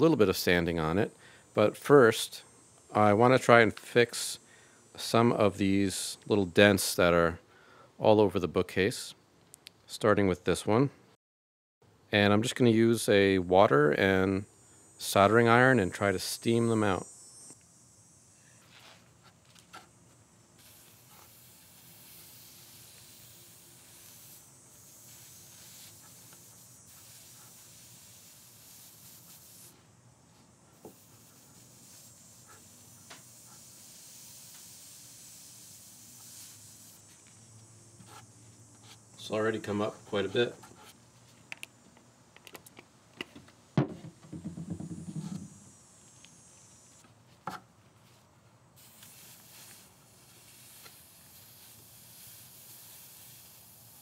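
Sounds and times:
steam hissing: 0:20.6 - 0:29.9, 0:30.7 - 0:37.2, 0:48.8 - 0:54.0
sharp knock: 0:43.8 - 0:45.6.

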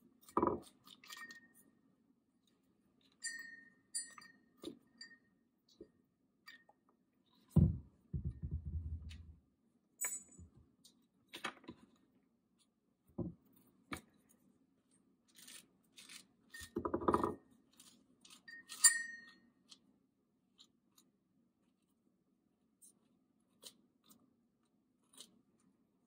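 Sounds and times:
metallic clink with ring: 0:03.2 - 0:05.3, 0:10.0 - 0:10.4, 0:18.5 - 0:19.4
dull thump: 0:07.6 - 0:09.2.

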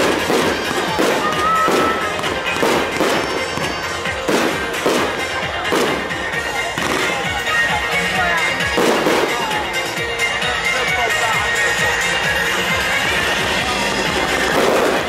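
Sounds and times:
fireworks shells bursting: 0:00.0 - 0:07.4
music: 0:00.0 - 0:15.0.

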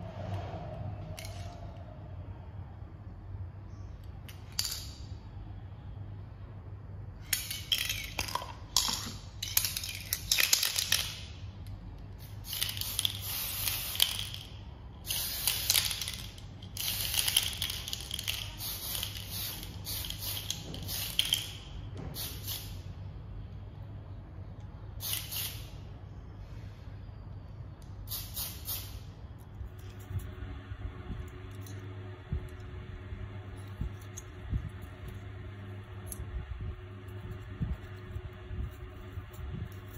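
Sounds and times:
spray hissing bursts: 0:12.4 - 0:14.2.

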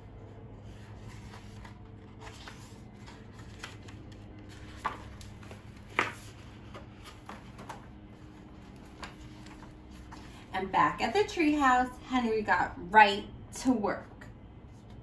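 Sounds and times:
book pages rustling: 0:00.1 - 0:10.5
page snapping: 0:03.4 - 0:06.3.

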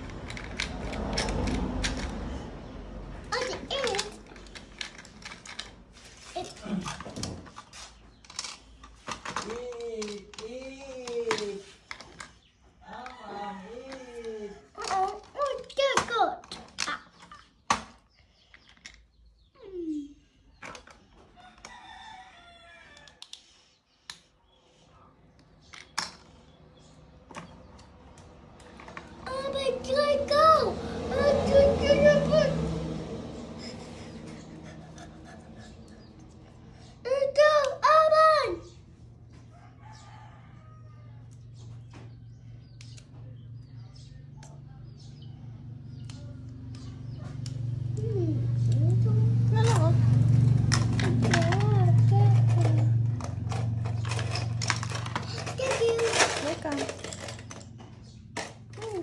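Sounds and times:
small birds chirping: 0:06.0 - 0:30.6, 0:33.3 - 0:50.3, 0:55.2 - 0:59.0.

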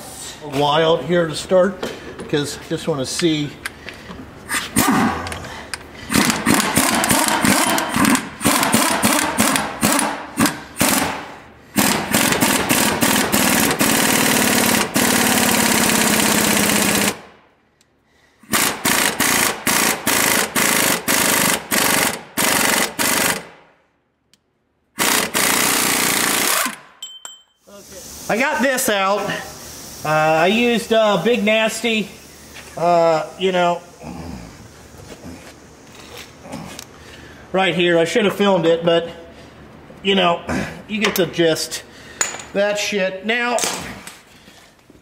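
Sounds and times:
impact wrench hammering: 0:06.1 - 0:17.2, 0:18.5 - 0:23.5, 0:25.0 - 0:27.4, 0:42.2 - 0:42.6.

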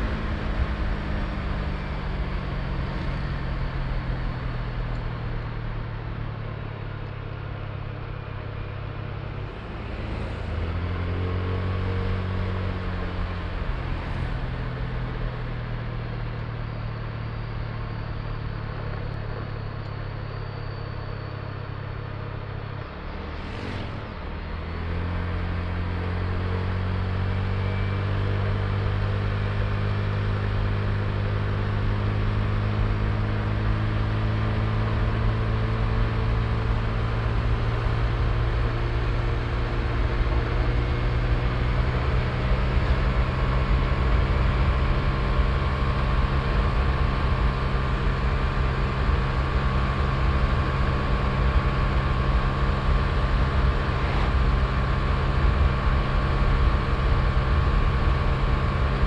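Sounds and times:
road noise: 0:00.0 - 0:59.0
scooter engine running: 0:35.9 - 0:59.0.

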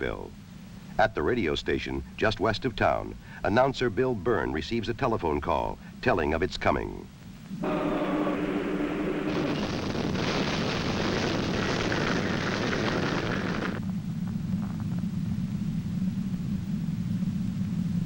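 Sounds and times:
steady low rumble: 0:00.0 - 0:18.0.

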